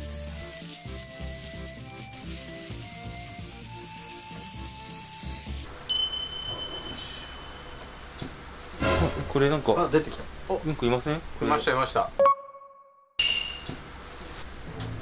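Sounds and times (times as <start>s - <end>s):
steam cleaner hissing: 0.0s - 5.7s
high ringing sound effect: 5.9s - 8.0s.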